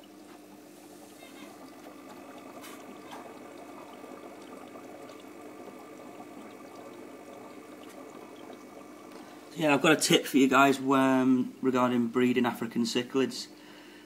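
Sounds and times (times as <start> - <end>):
water trickling hiss: 0.0 - 10.0
low equipment hum: 0.0 - 14.0.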